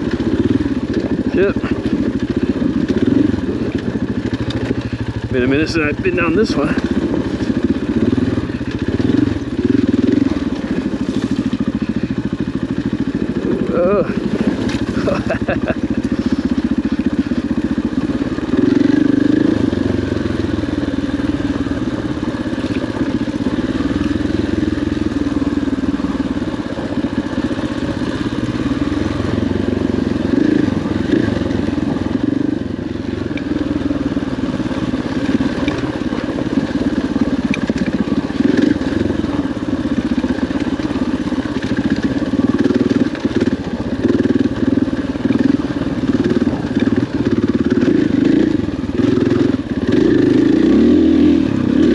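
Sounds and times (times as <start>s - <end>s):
dirt bike engine revving: 0.0s - 51.9s
knocks and clatter from rough ground: 14.0s - 17.4s, 34.9s - 39.0s.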